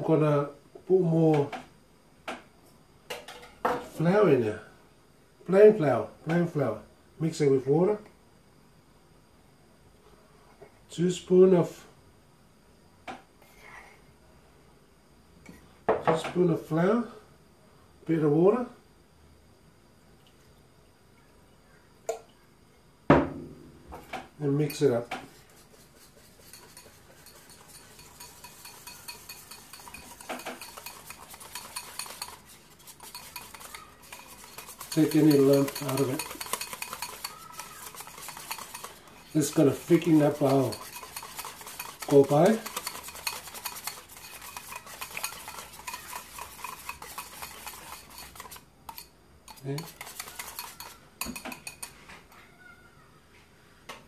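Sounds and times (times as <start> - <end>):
whisk clinking against bowl: 24.6 - 52.0.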